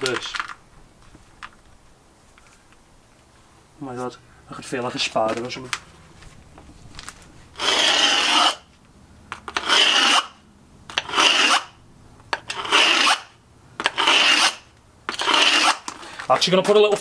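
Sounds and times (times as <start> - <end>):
file rasping on stone: 7.6 - 8.7, 9.4 - 11.8, 12.4 - 16.0.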